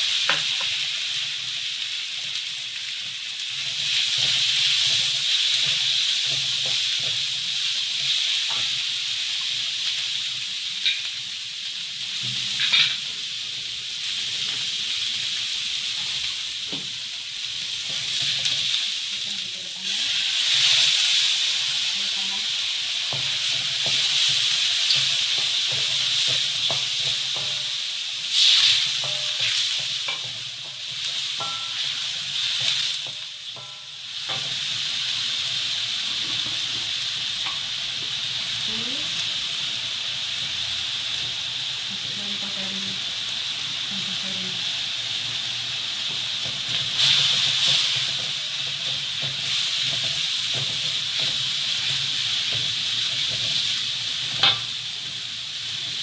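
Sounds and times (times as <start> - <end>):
food sizzling in hot oil: 0.0 - 56.0
spatula scraping and tapping wok: 0.2 - 0.9, 3.0 - 10.0, 10.8 - 11.2, 12.2 - 13.2, 17.6 - 19.0, 23.0 - 38.3, 46.0 - 56.0.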